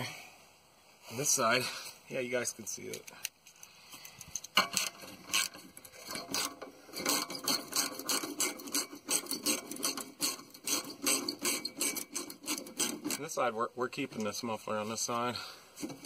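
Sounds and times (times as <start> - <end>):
ratcheting clicks with metal rasping: 2.8 - 13.4.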